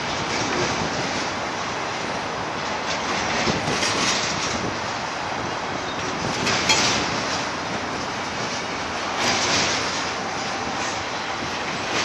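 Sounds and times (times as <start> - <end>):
freight train wheels rumbling on rail: 0.0 - 12.0.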